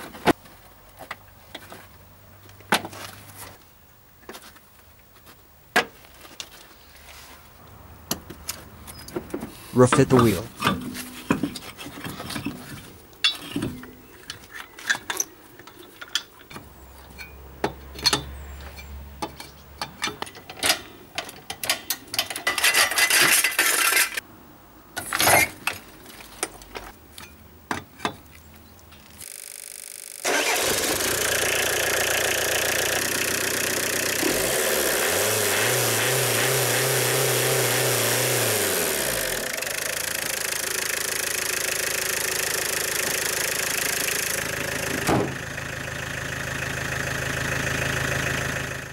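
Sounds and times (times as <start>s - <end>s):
metal clicks and knocks: 10.0s - 24.2s
diesel engine idling: 30.2s - 48.9s.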